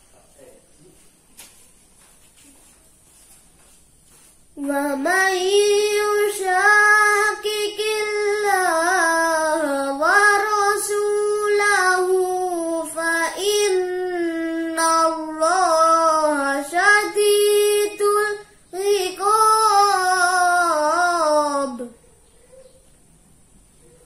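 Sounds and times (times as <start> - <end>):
boy reciting melodically: 4.6 - 22.0.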